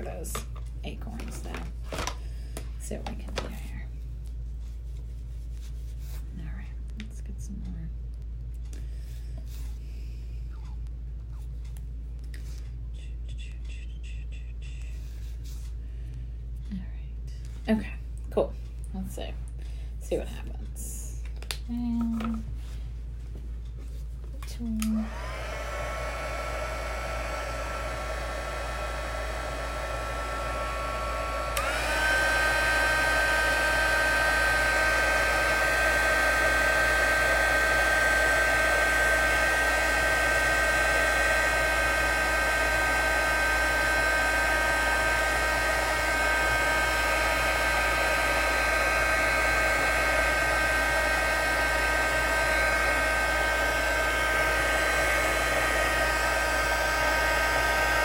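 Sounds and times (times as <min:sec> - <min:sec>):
heat tool blowing hot air: 0:24.9 - 0:58.0.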